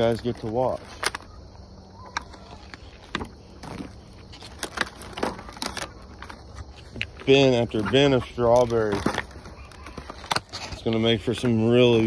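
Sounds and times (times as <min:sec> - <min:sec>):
chickens pecking and scuffing: 0:00.0 - 0:12.0.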